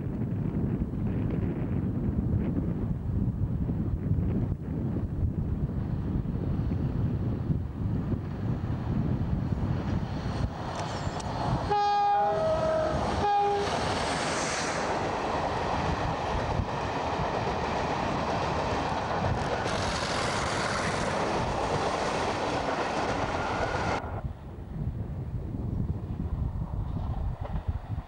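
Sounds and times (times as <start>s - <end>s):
train passing: 5.7s - 24.7s
two-tone locomotive horn: 11.6s - 13.8s.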